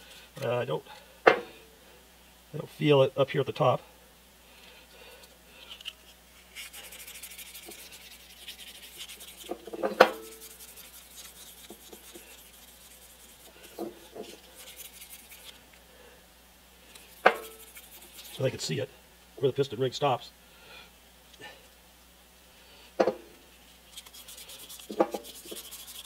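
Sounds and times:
abrasive paper rubbing inside metal bore: 5.7 - 15.6, 16.9 - 18.7, 23.6 - 26.0.

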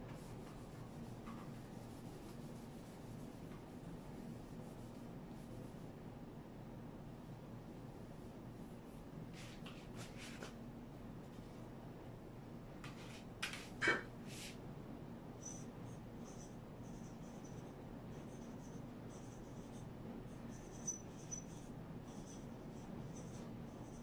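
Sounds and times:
marker squeaking on whiteboard: 15.4 - 17.6, 20.5 - 22.5.

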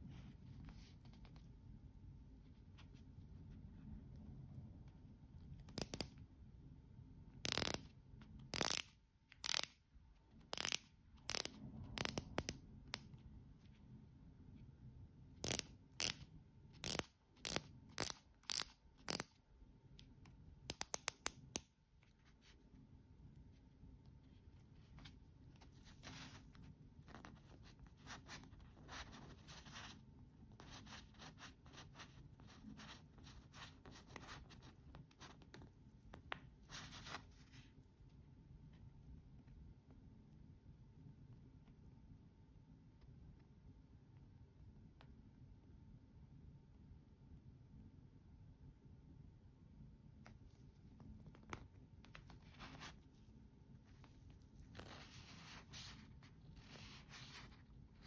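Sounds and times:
watch handling rubbing: 7.5 - 7.9, 8.5 - 8.8, 9.4 - 9.7, 10.5 - 13.0, 15.4 - 16.2, 16.8 - 19.2.

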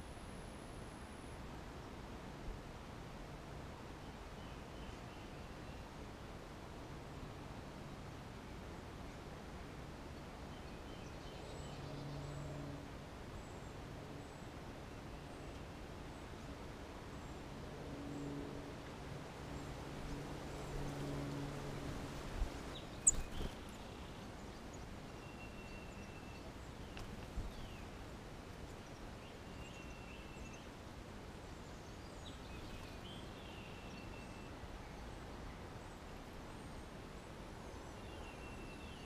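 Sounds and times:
outdoor background hiss: 0.0 - 39.0
songbirds calling: 19.3 - 30.8, 31.4 - 39.0.

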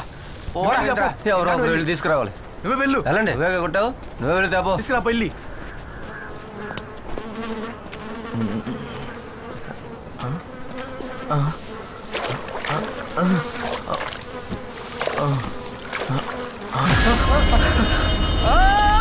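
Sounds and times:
rustle of tall grass: 0.0 - 1.3, 11.0 - 18.2
flies buzzing: 5.9 - 18.8.

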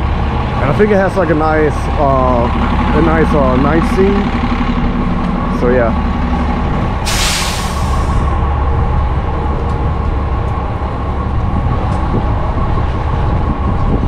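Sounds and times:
bus engine drone: 0.0 - 14.0
constant whine: 0.0 - 14.0
air brake hiss: 7.0 - 8.3.

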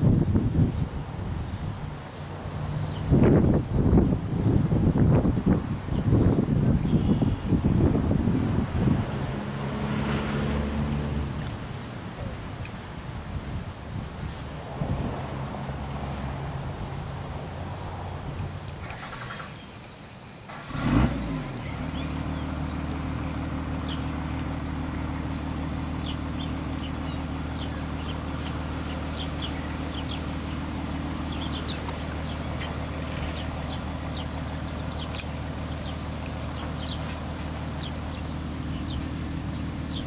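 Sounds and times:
small birds chirping: 5.9 - 7.6, 16.8 - 20.4, 21.4 - 40.0.

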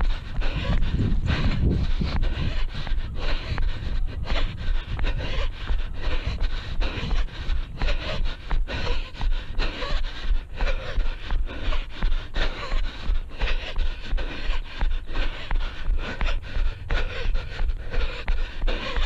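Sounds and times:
runner panting hard: 0.0 - 19.0.

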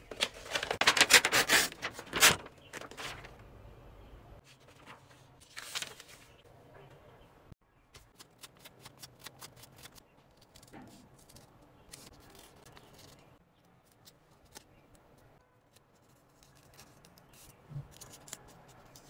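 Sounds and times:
paper handling: 0.0 - 3.4, 4.4 - 6.4
scissors snipping paper: 8.0 - 13.2.

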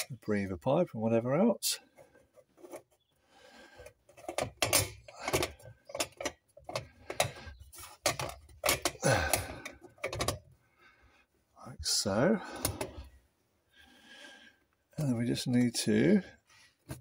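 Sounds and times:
metal clinks and scrapes: 3.8 - 10.4.

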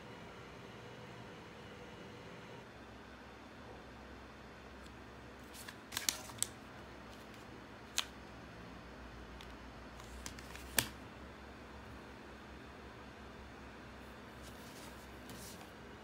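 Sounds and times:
plastic wrapper crackling: 5.5 - 6.6.

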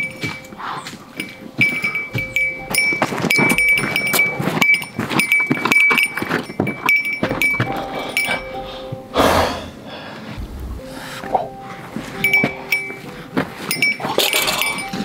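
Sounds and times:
metal camping gear clinking: 0.0 - 8.8, 12.2 - 15.0.

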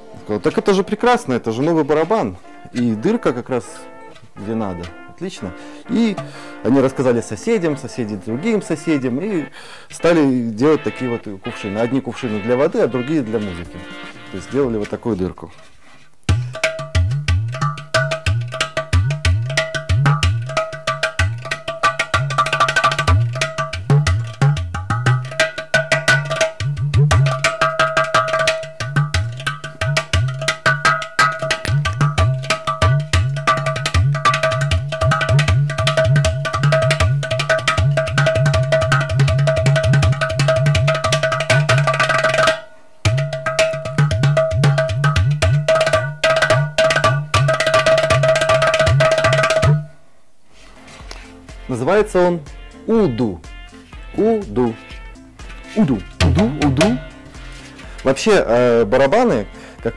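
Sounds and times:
sharp taps on clay drum: 16.3 - 49.8
clay-pot drum deep bass notes: 16.3 - 49.9, 51.5 - 59.5.

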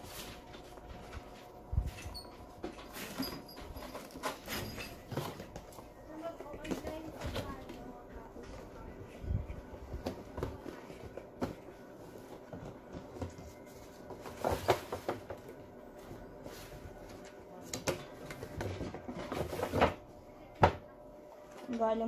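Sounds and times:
cardboard and plastic scraping: 18.2 - 20.0.

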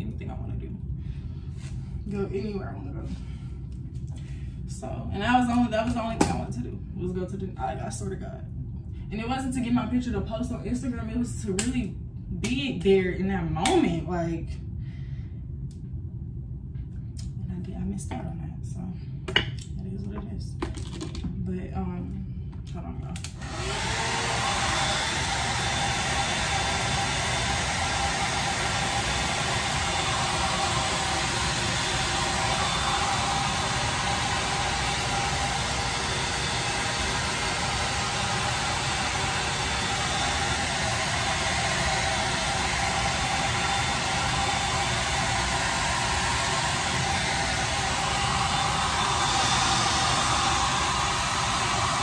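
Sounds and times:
hair dryer running: 5.2 - 6.5, 13.6 - 13.8, 23.2 - 52.0.

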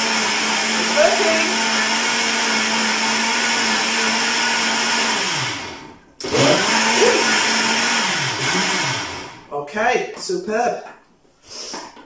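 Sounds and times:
blender motor running: 0.0 - 9.5.

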